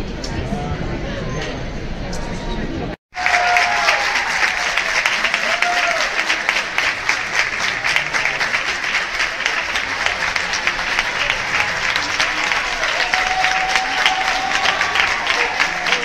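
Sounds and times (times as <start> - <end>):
audience applauding: 3.1 - 16.0.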